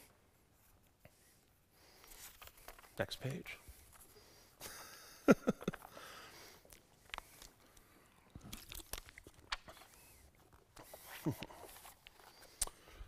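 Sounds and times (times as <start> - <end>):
paper rustling: 1.9 - 4.1
person laughing: 4.6 - 5.9, 11.1 - 11.7.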